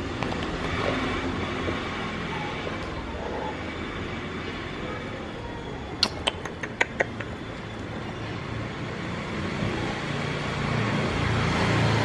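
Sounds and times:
steady background hum: 0:00.0 - 0:10.0.

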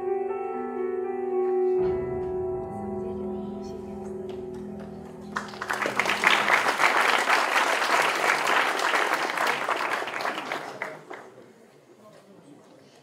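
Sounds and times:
music with long sustained notes: 0:00.0 - 0:08.0
audience applause: 0:04.5 - 0:11.5.

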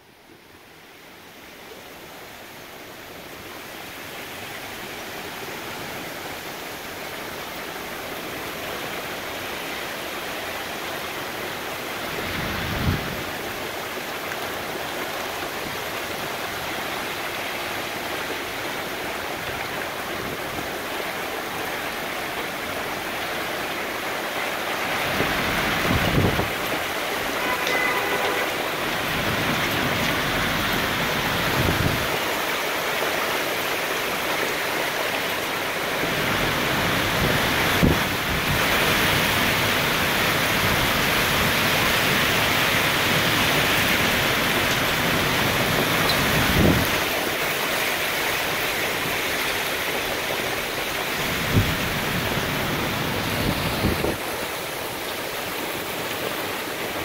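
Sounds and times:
hail and rain pelting down: 0:03.3 - 0:57.0
strong wind: 0:12.0 - 0:13.6, 0:24.6 - 0:32.4, 0:35.9 - 0:57.0.

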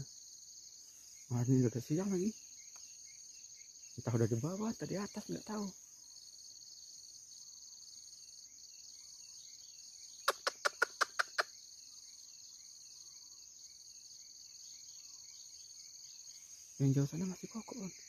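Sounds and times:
faint bird chirps: 0:00.0 - 0:18.0
high-pitched insect chorus: 0:00.0 - 0:18.0
sharp loud clicks: 0:10.3 - 0:11.5.

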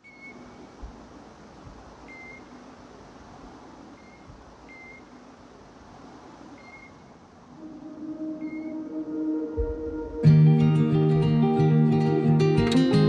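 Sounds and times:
falling water hissing: 0:00.2 - 0:08.4.

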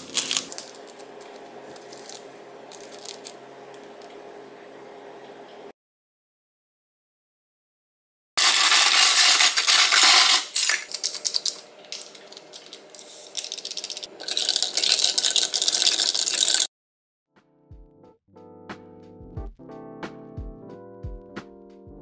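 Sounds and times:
ice cubes clinking in glass: 0:08.4 - 0:16.7.

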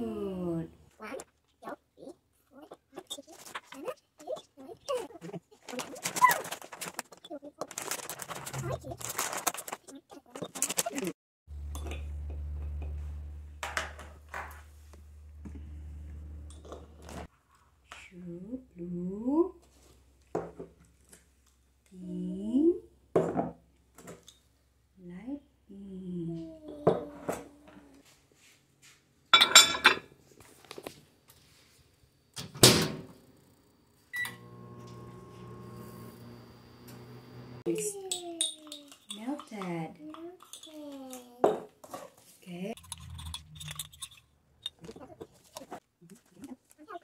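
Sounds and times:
steady low hum: 0:11.5 - 0:17.3.

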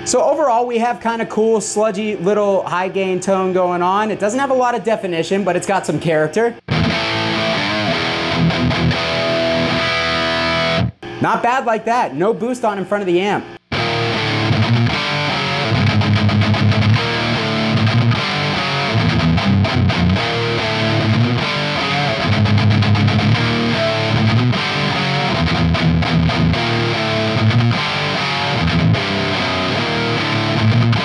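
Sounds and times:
distorted electric guitar riff: 0:06.5 - 0:31.0.

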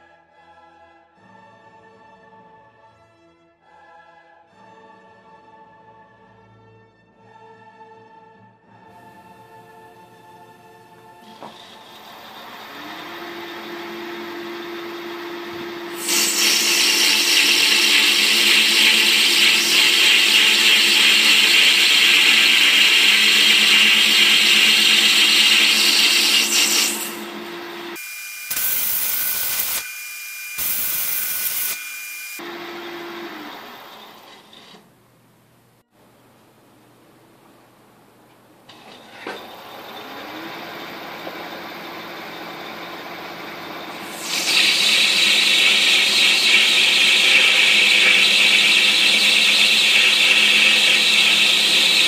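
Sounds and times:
lathe motor humming: 0:11.2 - 0:28.0, 0:32.3 - 0:34.8, 0:38.7 - 0:52.0
loud steady hiss: 0:15.9 - 0:27.4.

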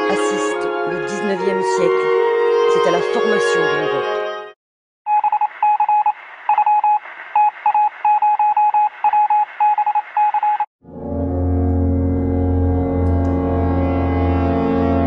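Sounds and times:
morse code beeps: 0:05.1 - 0:10.7.

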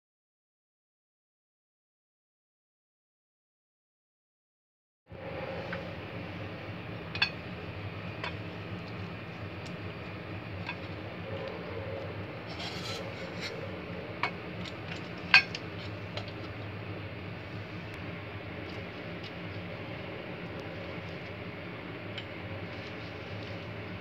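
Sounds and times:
steady low hum: 0:05.1 - 0:24.0
brush rubbing inside metal barrel: 0:11.3 - 0:14.2.

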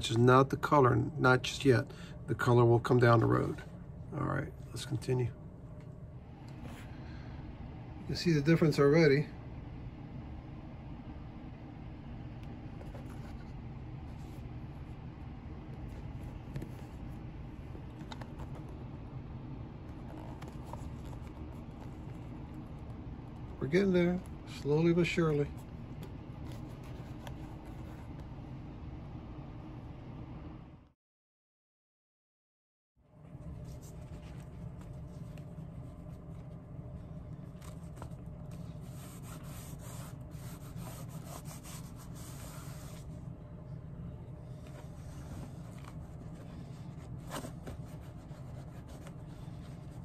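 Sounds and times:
low background hum: 0:00.0 - 0:31.0, 0:33.0 - 0:50.0
cloth rustling and scraping on shoe: 0:12.7 - 0:15.1, 0:19.9 - 0:28.2, 0:33.4 - 0:36.6, 0:37.4 - 0:43.2, 0:44.5 - 0:50.0
low hum: 0:33.0 - 0:50.0.

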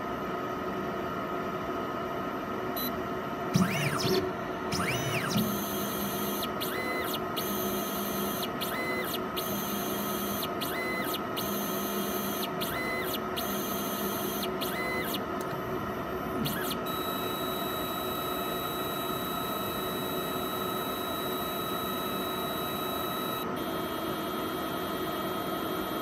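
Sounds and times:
stepper motors whining: 0:03.6 - 0:15.5.

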